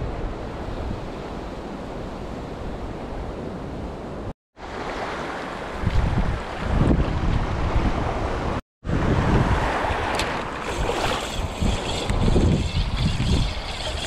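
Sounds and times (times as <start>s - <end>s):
wind on microphone: 5.7s - 14.0s.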